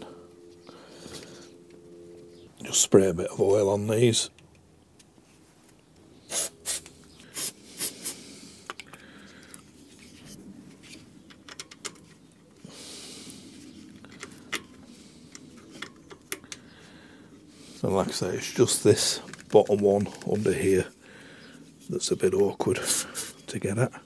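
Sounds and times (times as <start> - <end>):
aerosol spray hissing: 6.3 - 8.4
metallic clicks and rattles of bolts: 11.3 - 12.2.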